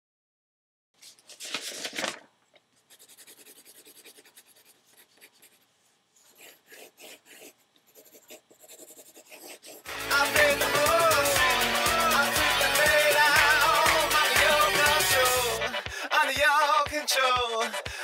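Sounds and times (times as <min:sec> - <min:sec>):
pen scratching on paper: 0:02.9 - 0:05.6, 0:06.2 - 0:09.9
music: 0:09.9 - 0:18.0.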